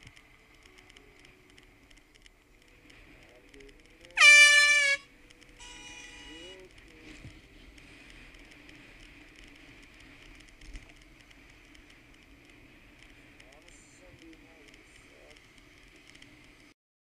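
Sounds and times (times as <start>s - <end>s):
air horn blast: 4.2s - 6.4s
quieter horn-like tone: 4.2s - 6.6s.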